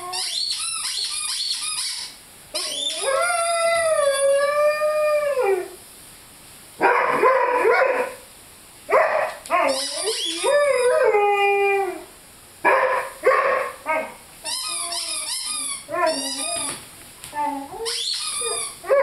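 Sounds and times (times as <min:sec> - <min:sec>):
puppy howling and yipping: 0:09.2 - 0:12.0, 0:15.8 - 0:16.8.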